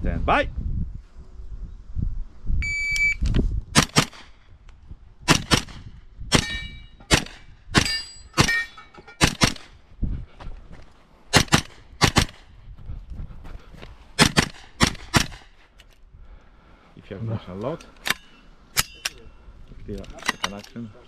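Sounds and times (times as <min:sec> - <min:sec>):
shot timer beep: 0:02.6 - 0:03.2
carbine gunshots: 0:03.8 - 0:04.4, 0:05.3 - 0:09.8, 0:11.3 - 0:12.5, 0:14.2 - 0:15.6
steel targets ringing: 0:06.4 - 0:07.1, 0:07.8 - 0:09.3, 0:18.2 - 0:19.4.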